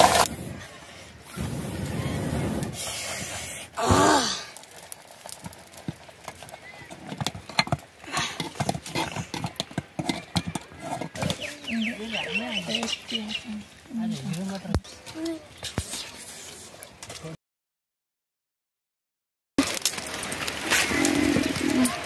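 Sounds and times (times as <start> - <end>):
person blowing into fire: 0.0 - 4.6.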